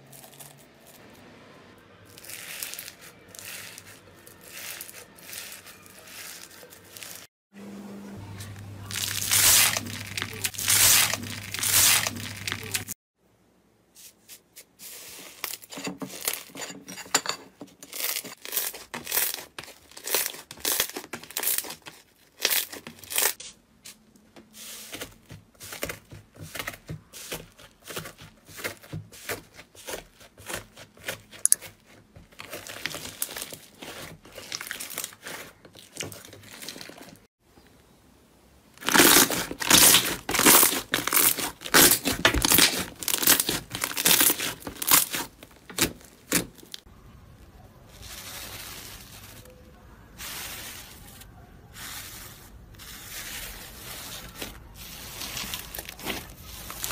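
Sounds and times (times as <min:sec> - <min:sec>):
slime squishing and crackling: 0:08.8 - 0:13.0, 0:17.9 - 0:23.4, 0:24.9 - 0:37.2, 0:38.8 - 0:46.9, 0:52.8 - 0:56.9.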